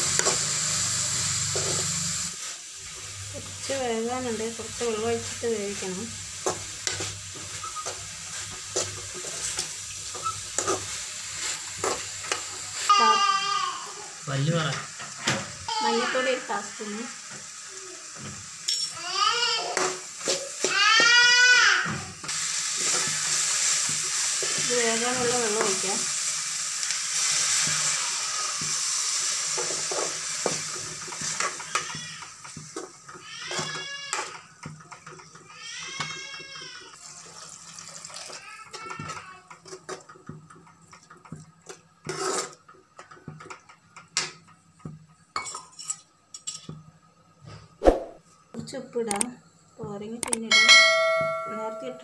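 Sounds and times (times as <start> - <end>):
food sizzling in a pan: 0.0 - 52.0
metal spoon scraping a pan: 6.4 - 12.9, 22.2 - 34.4, 41.6 - 43.2.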